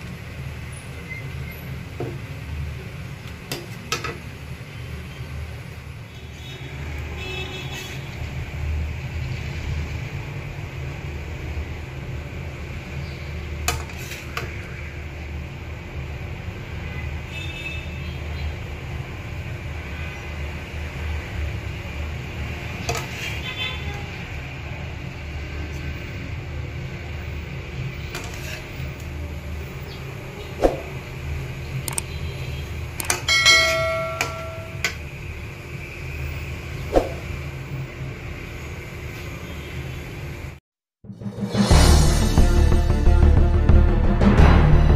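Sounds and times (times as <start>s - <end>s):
metal spatula scraping wok: 13.7s - 14.6s, 22.8s - 23.9s, 28.1s - 28.9s
clicks: 31.8s - 32.1s
metal spatula clinking on pan: 33.2s - 34.9s
ringing bell-like chime: 33.3s - 34.8s.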